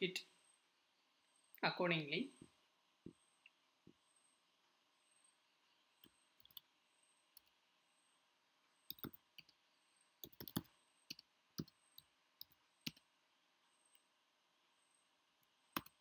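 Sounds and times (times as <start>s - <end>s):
keyboard typing clicks: 8.9s - 9.6s, 10.2s - 13.0s, 15.8s - 16.0s.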